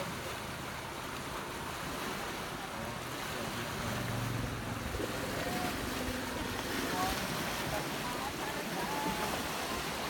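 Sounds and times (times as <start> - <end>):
river water rushing: 0.0 - 10.0.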